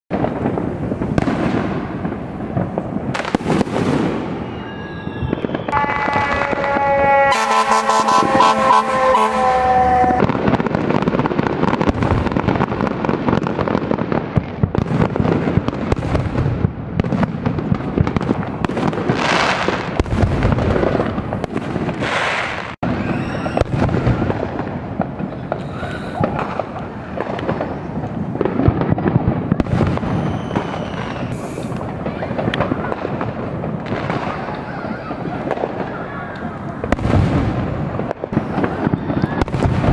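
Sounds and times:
fireworks bangs and crackling: 0:00.1 - 0:39.9
firework whistles: 0:01.1 - 0:10.5, 0:21.4 - 0:24.6, 0:25.3 - 0:28.4, 0:29.5 - 0:33.0
fire engine horn blaring: 0:04.6 - 0:10.4.

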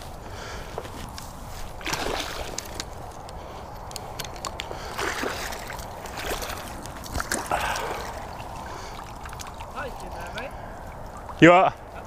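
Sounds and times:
fish splashing in water: 0:01.8 - 0:02.9, 0:04.7 - 0:11.4.

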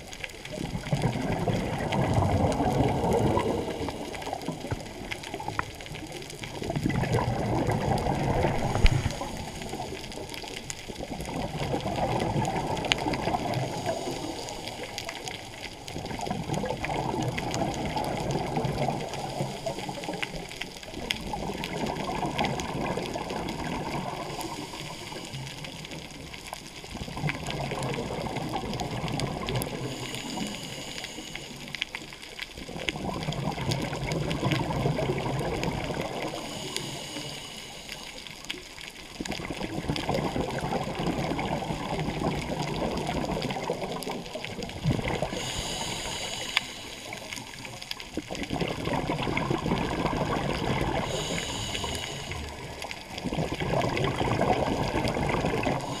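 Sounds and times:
exhaled bubbles gurgling: 0:00.0 - 0:56.0
regulator hissing inhale: 0:08.5 - 0:10.3, 0:13.5 - 0:15.0, 0:24.2 - 0:25.7, 0:29.8 - 0:31.8, 0:36.2 - 0:38.5, 0:45.2 - 0:47.8, 0:51.0 - 0:52.8, 0:55.7 - 0:56.0.

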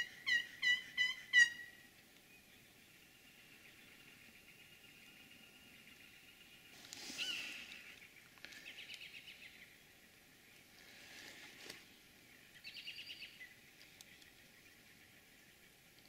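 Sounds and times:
bird trill calls: 0:00.0 - 0:01.8, 0:07.0 - 0:09.7, 0:12.6 - 0:13.6
outdoor background noise: 0:00.0 - 0:16.0.

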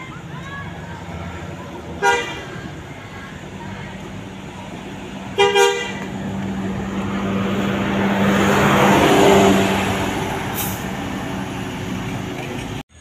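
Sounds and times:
bus diesel engine passing: 0:00.0 - 0:13.0
bus horn toot: 0:02.0 - 0:02.8, 0:05.3 - 0:06.4
brief hiss: 0:10.5 - 0:10.9.

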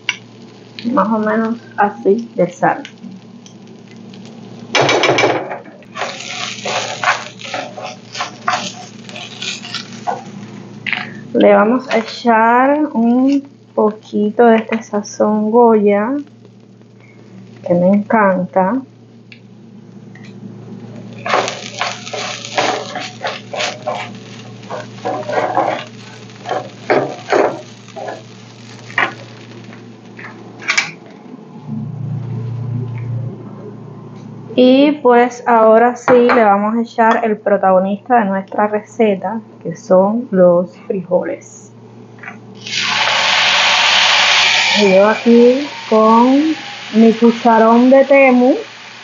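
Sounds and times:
rice sizzling: 0:00.0 - 0:31.5, 0:41.9 - 0:49.0
low hum: 0:05.6 - 0:34.8
wooden spoon scraping rice in pan: 0:06.0 - 0:10.3, 0:21.2 - 0:28.3.

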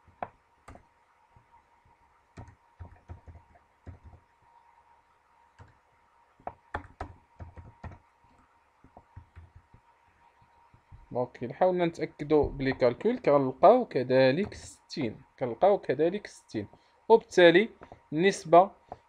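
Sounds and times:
computer keyboard typing: 0:00.0 - 0:00.9, 0:02.4 - 0:04.3, 0:05.6 - 0:05.8, 0:06.4 - 0:08.1, 0:08.9 - 0:09.8.

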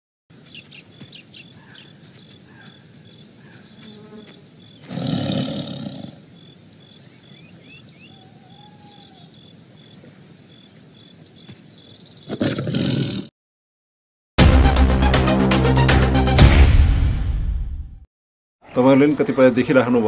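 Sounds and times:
faint birds chirping: 0:00.3 - 0:12.6
tiger roar: 0:04.8 - 0:06.3, 0:12.3 - 0:13.3.

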